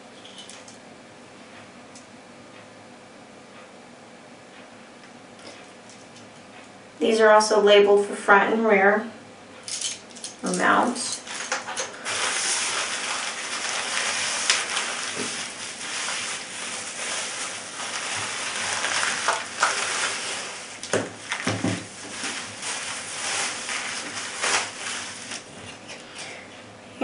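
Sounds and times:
bubble wrap crinkling: 0:11.1 - 0:25.6.

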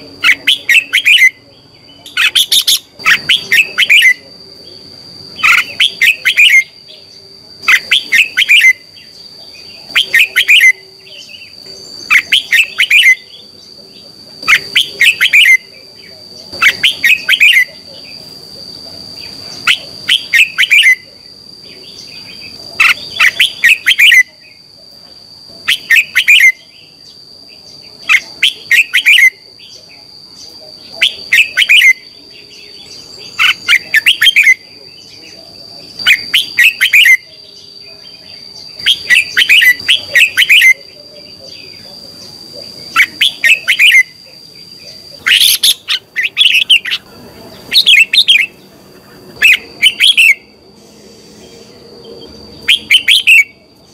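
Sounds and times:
bird singing chattering phrases: 0:00.0 - 0:24.7, 0:25.6 - 0:53.9.

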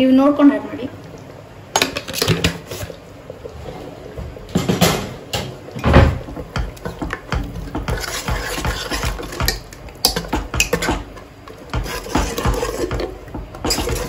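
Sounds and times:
ladle scraping metal pot: 0:06.7 - 0:14.0.

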